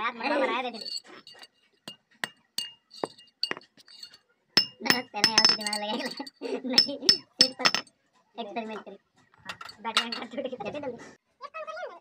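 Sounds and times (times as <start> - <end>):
hammer tapping on metal: 4.6 - 6.2, 6.8 - 7.8.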